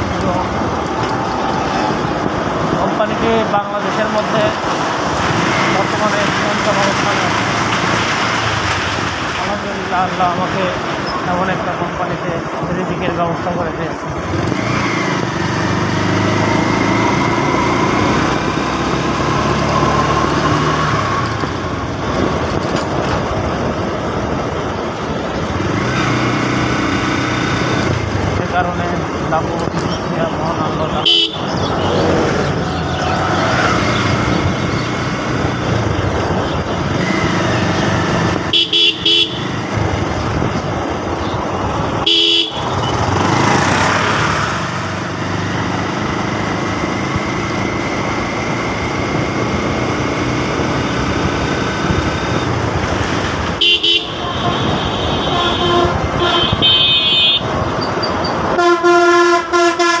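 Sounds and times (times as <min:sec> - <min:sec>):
wind and road rush: 0:00.0 - 1:00.0
multi-tone horn blast: 0:31.0 - 0:31.5, 0:38.5 - 0:39.6, 0:42.0 - 0:42.9, 0:53.6 - 0:57.5, 0:58.6 - 1:00.0
vehicle horn toots: 0:31.0 - 0:31.6, 0:38.5 - 0:39.6, 0:42.0 - 0:43.0, 0:53.6 - 0:57.5, 0:58.6 - 1:00.0.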